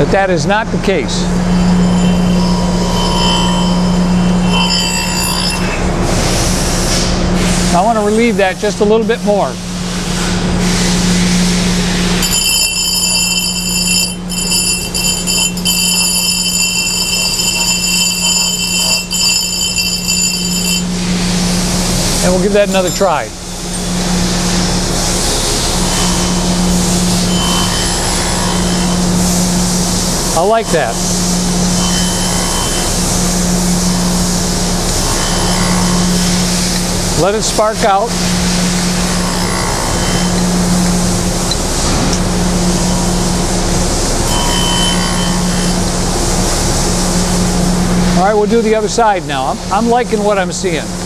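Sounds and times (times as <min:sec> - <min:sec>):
grinding wheel high-pitched squeal: 0:00.8 - 0:06.8, 0:11.8 - 0:48.5
grinder spindle humming: 0:00.8 - 0:08.4, 0:10.4 - 0:48.2.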